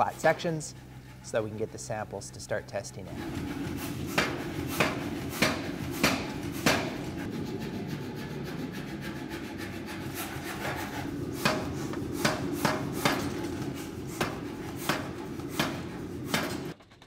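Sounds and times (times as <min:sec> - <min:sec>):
power hammer machine drone: 0:03.0 - 0:16.8
power hammer striking hot steel: 0:03.2 - 0:07.3, 0:10.6 - 0:16.8.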